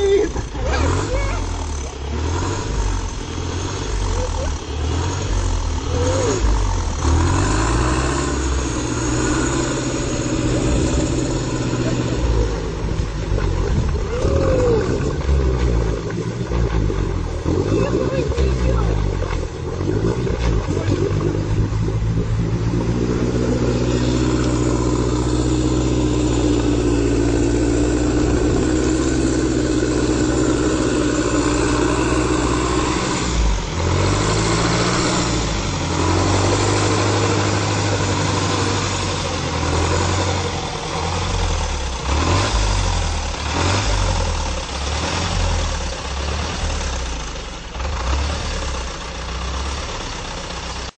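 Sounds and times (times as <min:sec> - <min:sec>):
off-road vehicle engine revving: 0:00.0 - 0:51.0.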